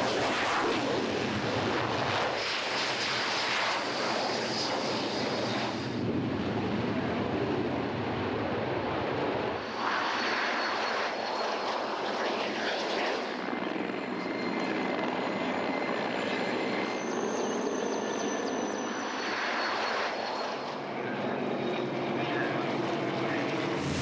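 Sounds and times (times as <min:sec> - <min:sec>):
jet engine rush: 0:00.0 - 0:07.7, 0:18.7 - 0:24.0
helicopter rotors: 0:00.0 - 0:24.0
propeller engine drone: 0:00.0 - 0:24.0.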